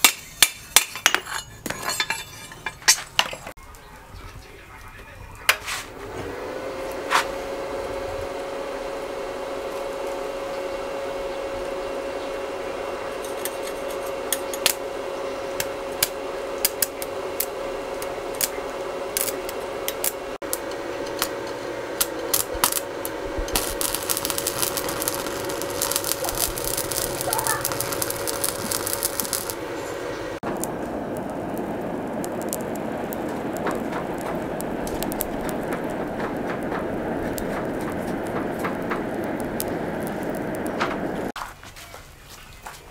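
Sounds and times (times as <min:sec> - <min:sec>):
welder humming: 0:05.5 - 0:41.4
welding arc crackling: 0:05.9 - 0:41.4
electrode striking cracks: 0:15.6 - 0:41.4.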